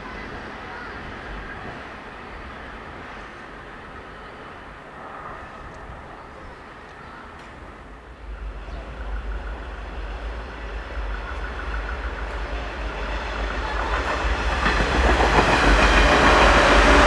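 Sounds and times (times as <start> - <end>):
train wheels on track: 0.0 - 17.0.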